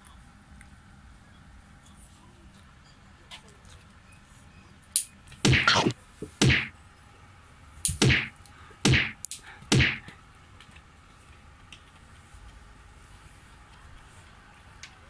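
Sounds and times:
cat paw whacks: 0:05.5 - 0:06.7, 0:07.9 - 0:08.3, 0:08.9 - 0:10.1.

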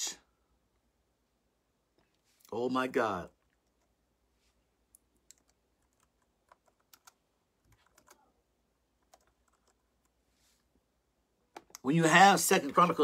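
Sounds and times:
keyboard clicks: 0:05.2 - 0:08.2, 0:09.0 - 0:10.2.

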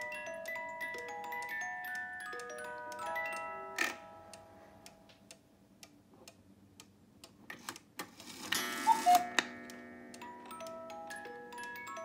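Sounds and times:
clock ticking: 0:00.0 - 0:12.0
two-note cuckoo call: 0:08.7 - 0:09.6.

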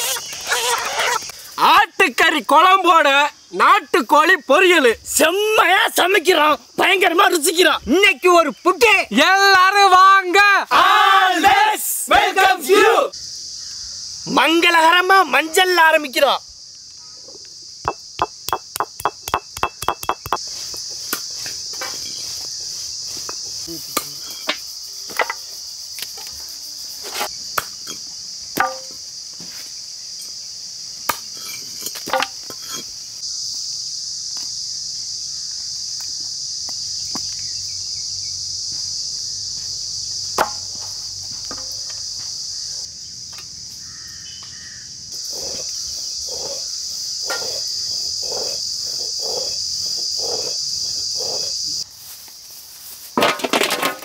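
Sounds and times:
insects chirring: 0:00.0 - 0:54.0
sharp knocks: 0:17.8 - 0:20.4
cleaver chopping wooden block: 0:28.6 - 0:28.9, 0:40.4 - 0:40.7.

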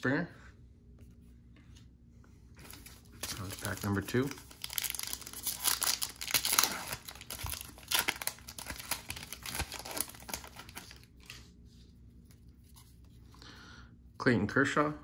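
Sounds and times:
wrapper crinkling and tearing: 0:02.6 - 0:11.4
cards being handled: 0:02.6 - 0:11.5.

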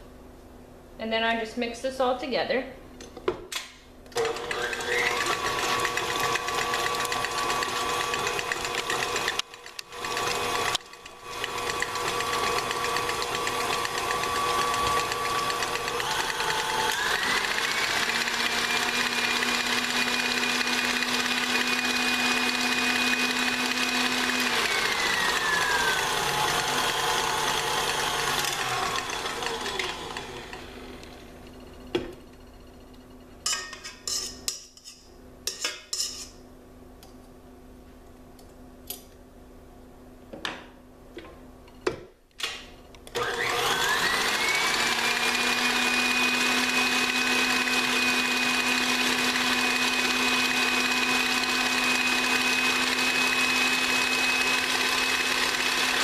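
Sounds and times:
stand mixer whirring: 0:04.2 - 0:31.6, 0:43.1 - 0:56.0.

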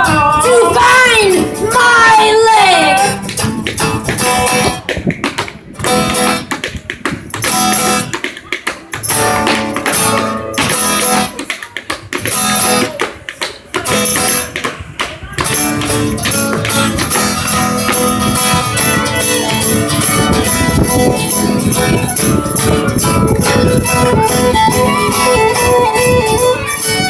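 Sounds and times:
acoustic guitar strumming: 0:00.4 - 0:04.9, 0:09.0 - 0:11.3, 0:15.4 - 0:27.0
tap dancing on wooden board: 0:03.3 - 0:19.7.

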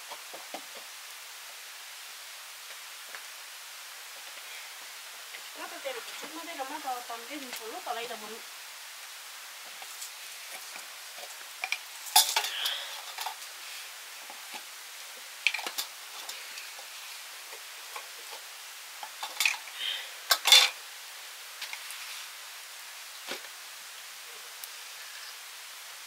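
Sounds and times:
steady hiss: 0:00.0 - 0:26.0
metal dishes clinking and scraping: 0:12.1 - 0:13.4, 0:20.3 - 0:20.8.

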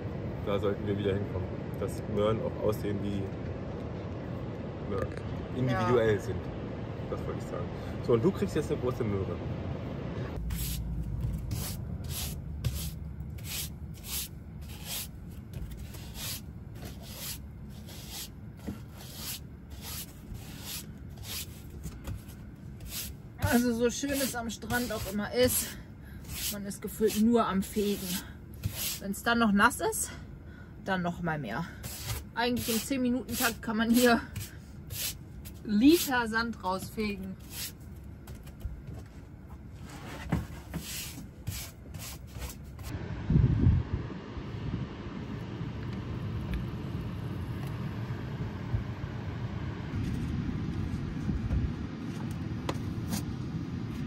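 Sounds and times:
broom sweeping sand: 0:10.4 - 0:10.8, 0:11.5 - 0:15.1, 0:15.8 - 0:21.7, 0:22.8 - 0:29.0, 0:31.8 - 0:36.1, 0:40.6 - 0:43.0
low rumble: 0:42.9 - 0:54.0.

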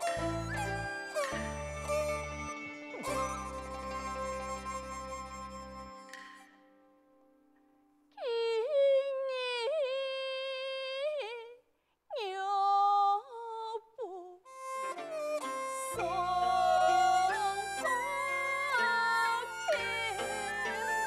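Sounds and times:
opera singing with pitch bends: 0:08.2 - 0:14.5, 0:15.8 - 0:21.0.

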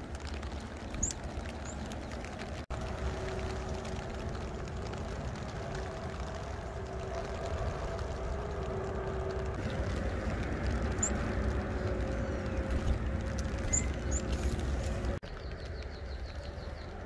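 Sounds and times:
steady rain: 0:00.0 - 0:17.0
high bird chirps: 0:13.6 - 0:14.6.

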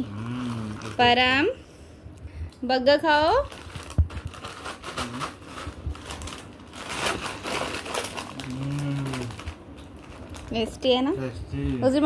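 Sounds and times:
man humming: 0:00.0 - 0:01.0, 0:05.0 - 0:05.4, 0:08.3 - 0:09.4
plastic snack packet crinkling: 0:03.3 - 0:10.7.

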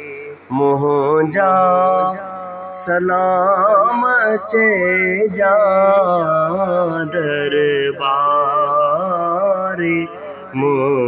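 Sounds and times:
man singing devotional song: 0:00.0 - 0:11.0.

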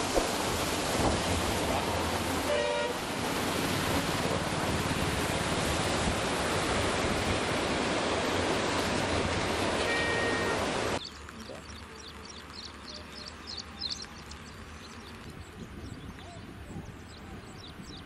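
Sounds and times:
rushing flood water: 0:00.0 - 0:18.0
vehicle horn toot: 0:02.5 - 0:03.0, 0:09.8 - 0:10.7.

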